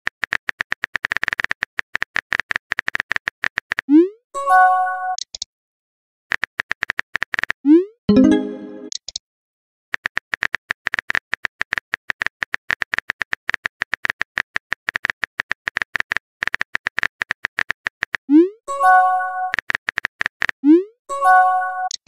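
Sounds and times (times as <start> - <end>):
message chime: 8.1 - 8.9.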